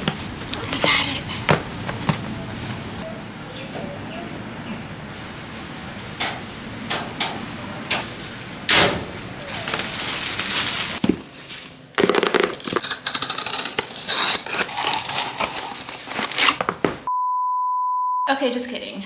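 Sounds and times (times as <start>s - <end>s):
paper packing crinkling: 9.3s - 17.0s.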